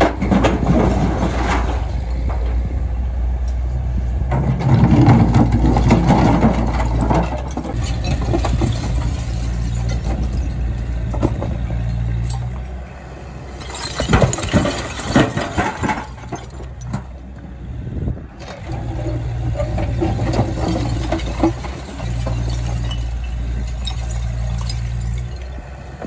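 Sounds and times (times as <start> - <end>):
rubble crashing into truck body: 0.0 - 2.5, 4.3 - 11.6, 13.5 - 17.2, 18.5 - 25.6
diesel engine under load: 0.0 - 26.0.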